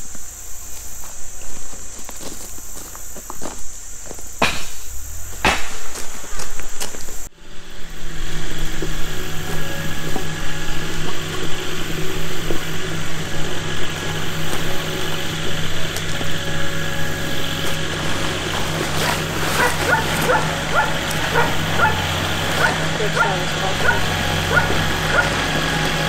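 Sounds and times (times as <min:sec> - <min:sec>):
insects chirping: 0:00.0 - 0:26.0
steady low hum: 0:00.0 - 0:26.0
footsteps on gravel: 0:00.7 - 0:07.3, 0:10.2 - 0:26.0
lumber knocking: 0:04.4 - 0:06.0.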